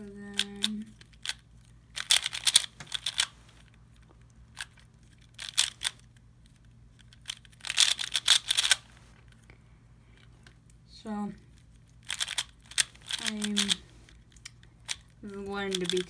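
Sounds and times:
speed cube layers clacking: 0.3 - 1.4, 2.0 - 3.4, 4.5 - 8.9, 12.0 - 13.9, 14.8 - 16.0.

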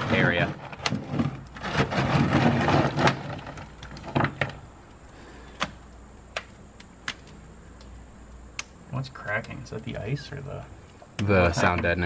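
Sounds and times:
frozen mat cracking and popping: 0.7 - 9.6
hands crunching dry ice: 4.8 - 10.0.

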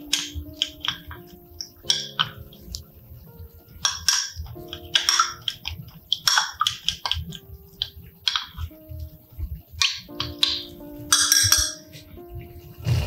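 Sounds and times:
spoon scraping and clinking glass: 9.8 - 12.0.

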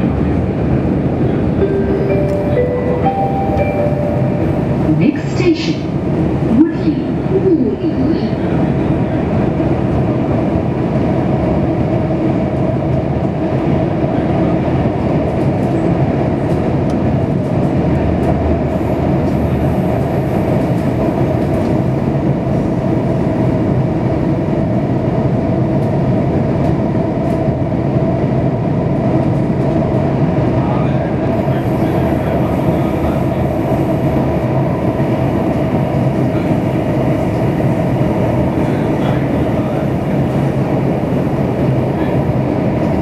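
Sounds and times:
metro train wheels rumbling: 0.0 - 43.0.

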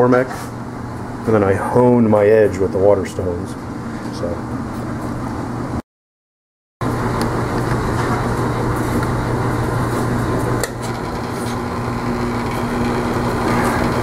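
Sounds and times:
grinder motor humming: 6.8 - 14.0.

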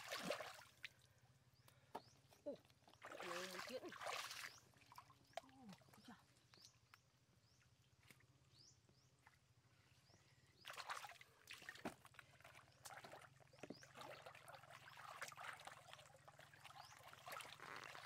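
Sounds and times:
hands splashing in muddy water: 0.0 - 1.0, 3.0 - 6.0.

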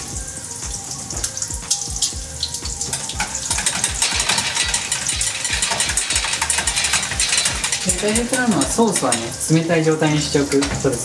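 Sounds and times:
bacon sizzling in pan: 0.0 - 11.0
whisk clicking in metal bowl: 2.9 - 10.9.

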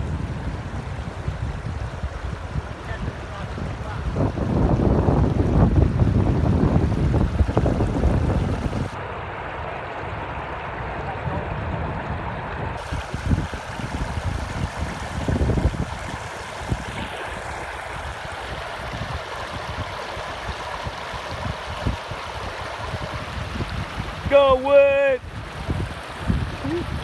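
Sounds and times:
low thumps and rumbles: 3.5 - 9.0, 10.2 - 17.2
river rapids rushing over rocks: 12.8 - 23.0.

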